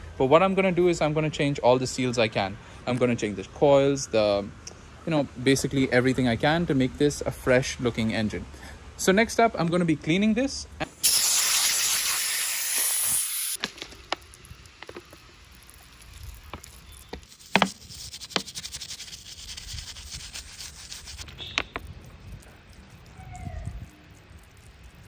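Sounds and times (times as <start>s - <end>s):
loud hiss: 11.0s - 13.7s
stiff brush scrubbing: 14.8s - 25.0s
brush tapping on metal: 16.5s - 18.8s.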